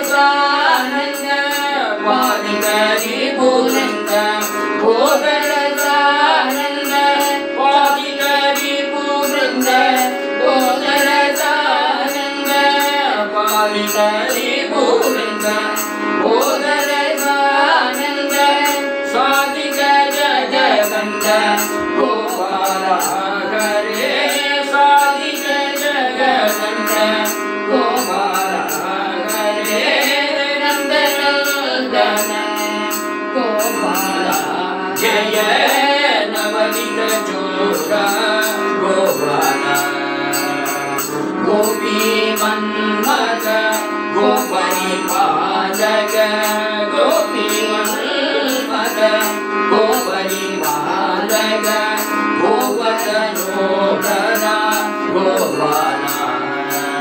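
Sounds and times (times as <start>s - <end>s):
harmonium drone: 0.0s - 57.0s
man and woman singing: 0.0s - 57.0s.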